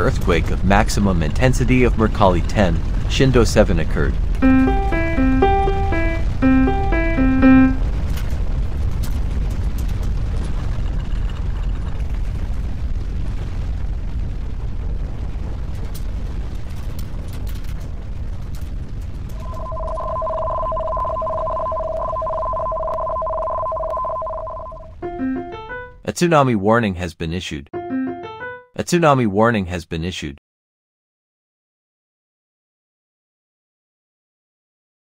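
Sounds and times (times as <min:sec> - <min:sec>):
deep continuous rumbling: 0:00.0 - 0:04.4, 0:07.8 - 0:21.2
two-tone warbling ring: 0:04.4 - 0:07.8, 0:19.4 - 0:25.8
crackles and rattles: 0:07.8 - 0:25.0.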